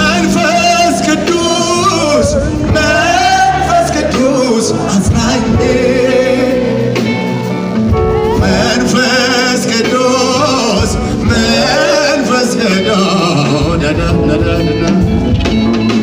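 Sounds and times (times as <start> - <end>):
band playing: 0.0 - 16.0
person singing with vibrato: 8.0 - 15.2.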